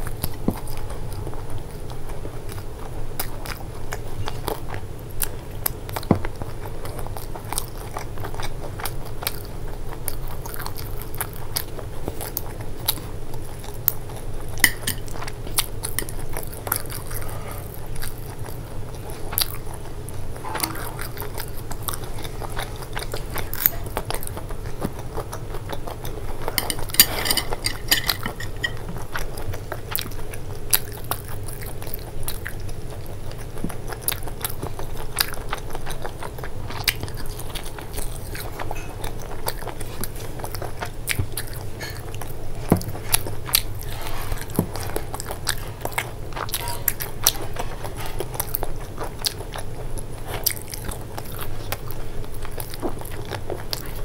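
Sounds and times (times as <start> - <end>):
crunchy chewing: 0.0 - 54.0.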